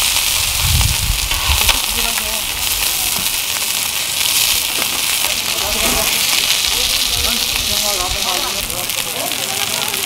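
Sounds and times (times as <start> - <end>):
batter sizzling on a griddle: 0.0 - 10.0
low rumble: 0.3 - 3.4.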